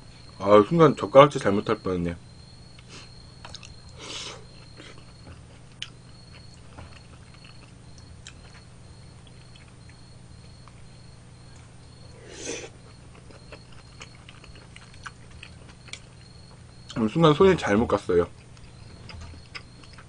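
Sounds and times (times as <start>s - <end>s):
person chewing food: 2.7s - 17.0s, 18.4s - 20.0s.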